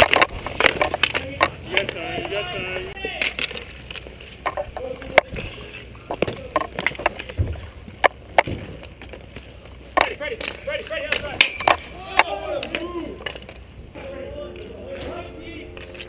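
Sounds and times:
hockey sticks and puck clacking: 0.0 - 16.0.

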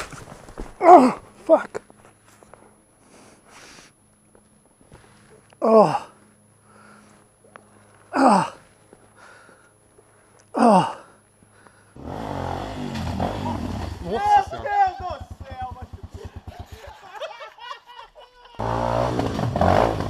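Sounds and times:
man groaning in pain: 0.8 - 1.7, 5.6 - 6.2, 8.1 - 8.6, 10.5 - 11.2.

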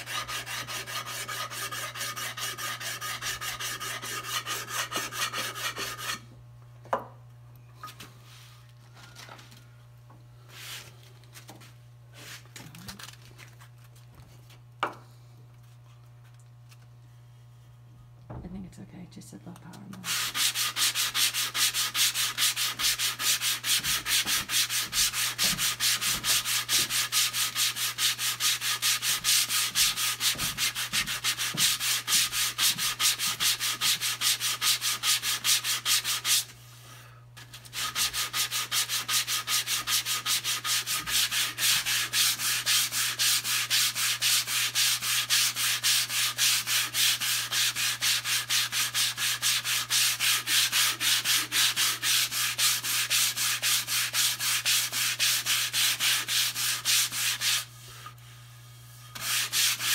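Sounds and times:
sandpaper rubbing on wood: 0.0 - 6.2, 20.0 - 36.5, 37.5 - 57.8, 59.1 - 59.9.

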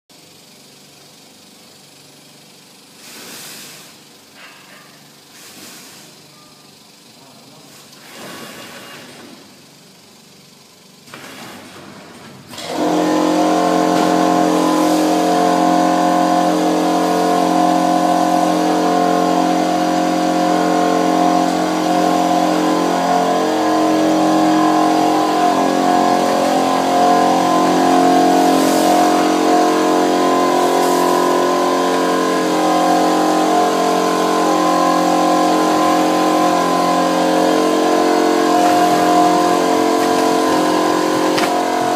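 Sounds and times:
machine motor humming: 12.1 - 41.9.

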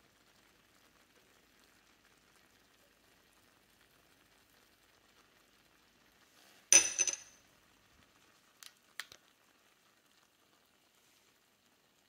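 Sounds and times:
utensil clinking glass pot: 6.8 - 7.4.

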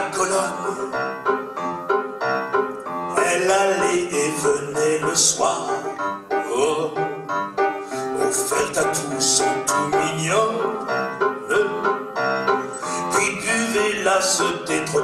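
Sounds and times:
man singing: 0.0 - 1.2, 3.1 - 7.4, 8.0 - 15.0
piano: 0.0 - 15.0.

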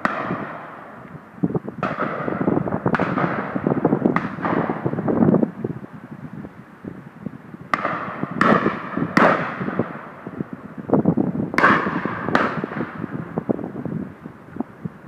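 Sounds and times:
distant gunshots: 0.0 - 0.9, 1.8 - 5.0, 7.7 - 10.2, 11.6 - 13.1
shotgun shots echoing: 0.0 - 0.9, 1.8 - 5.0, 7.7 - 10.1, 11.6 - 13.0.

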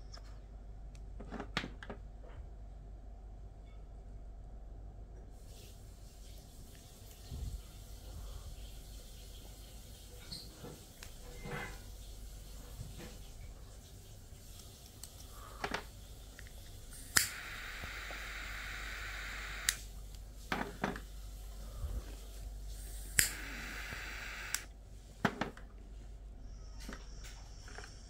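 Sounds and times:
torch lighter hissing: 14.5 - 21.1, 21.7 - 24.7
lighter clicking on: 16.4 - 19.9, 22.8 - 24.7.

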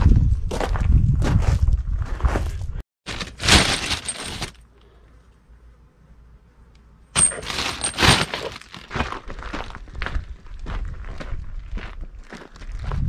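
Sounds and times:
metal clanking and clattering: 7.2 - 8.7.

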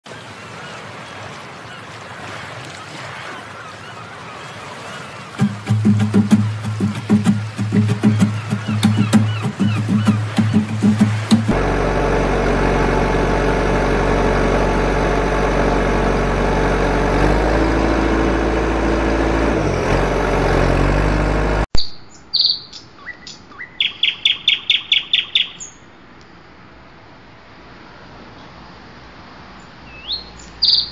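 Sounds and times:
bird chirping: 3.9 - 11.6, 21.8 - 25.9, 29.9 - 30.9
heavy engine rumbling: 5.4 - 21.7.

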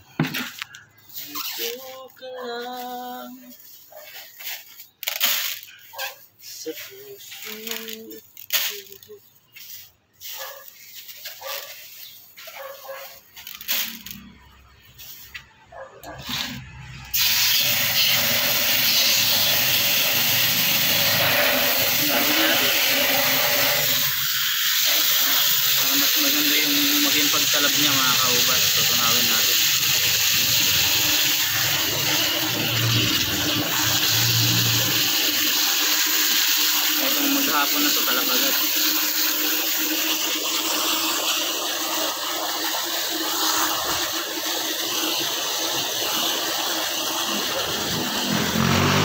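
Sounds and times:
plastic bag crinkling: 0.6 - 15.4
hose water splashing into bucket: 2.7 - 15.4, 16.2 - 49.0
granules pattering into bucket: 4.3 - 5.8.

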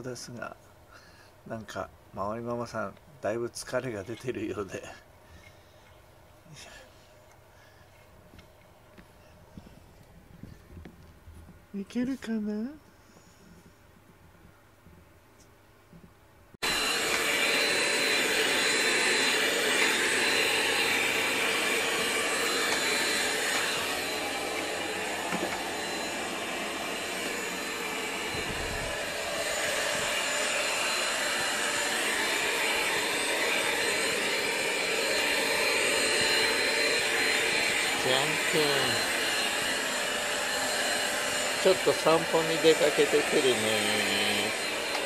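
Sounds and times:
electric air blower whirring: 16.6 - 45.0.

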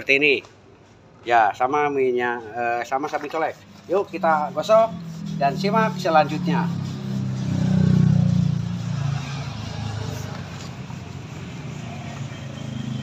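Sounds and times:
vehicle engine running: 3.9 - 13.0.

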